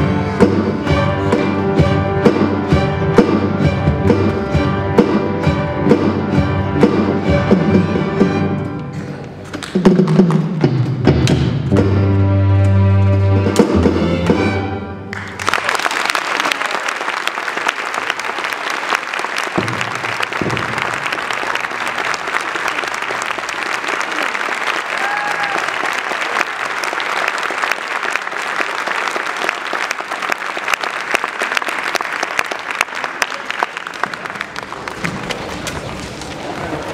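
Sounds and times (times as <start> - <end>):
audience applauding: 15.1 - 36.9.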